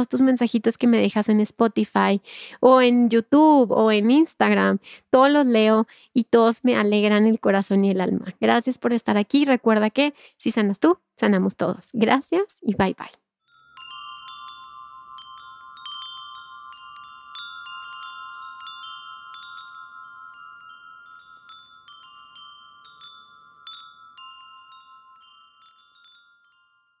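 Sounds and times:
wind chimes ringing: 13.4s - 27.0s.

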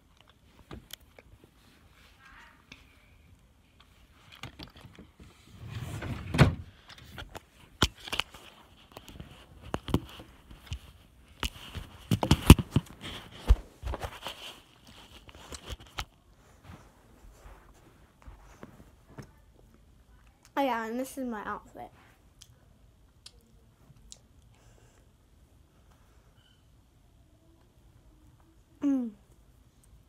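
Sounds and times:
fabric rustling: 7.4s - 19.4s.

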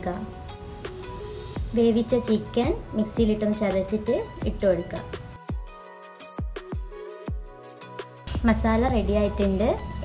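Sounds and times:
instrumental background music: 0.0s - 10.0s
deep pitch-dropping bass thuds: 8.3s - 10.0s.

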